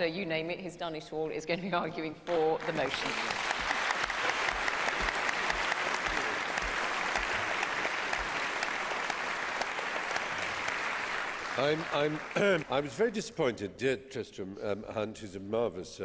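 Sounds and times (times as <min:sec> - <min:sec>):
audience applauding: 0:02.6 - 0:13.1.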